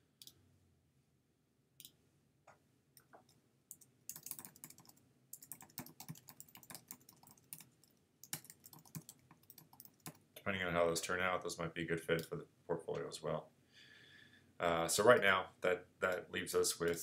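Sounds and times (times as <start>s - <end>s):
faint keyboard typing: 3.0s - 10.5s, 16.0s - 17.0s.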